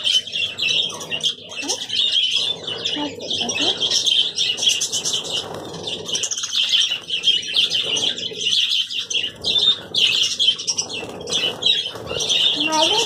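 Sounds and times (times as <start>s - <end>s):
budgerigars chattering and chirping: 0.0s - 13.0s
wings flapping: 3.4s - 13.0s.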